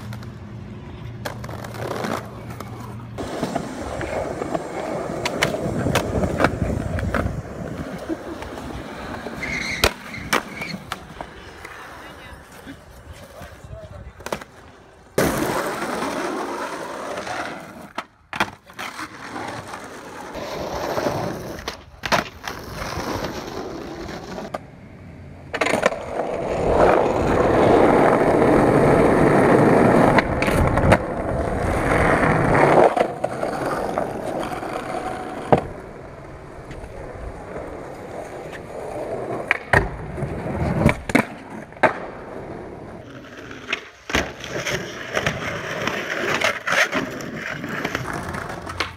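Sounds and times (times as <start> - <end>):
skateboard clacks: 0.0 - 12.6, 25.5 - 42.3, 43.0 - 48.9
skateboard wheels rolling on concrete: 0.0 - 48.9.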